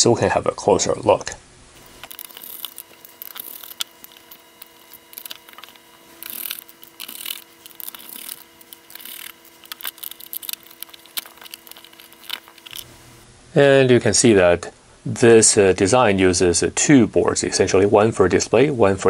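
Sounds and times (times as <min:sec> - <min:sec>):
scraping rustles: 0:01.8 - 0:13.2.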